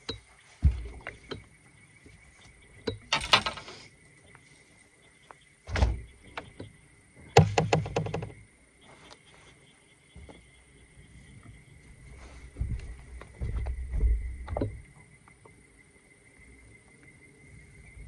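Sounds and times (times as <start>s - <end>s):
gear clattering on boat deck: 2.8s - 3.9s
rattling clicks: 2.9s - 3.9s.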